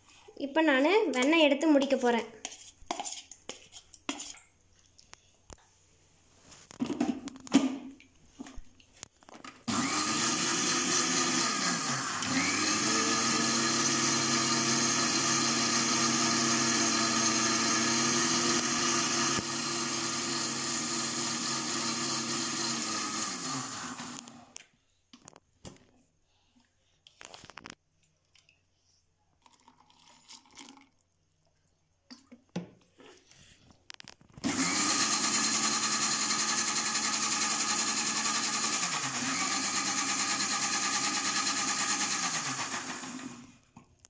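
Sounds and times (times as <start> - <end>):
mixer grinder motor running: 9.7 - 24.5, 34.4 - 43.5.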